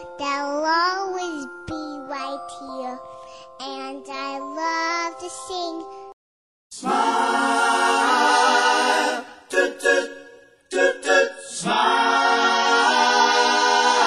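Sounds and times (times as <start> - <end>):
voices singing: 6.8 - 14.0.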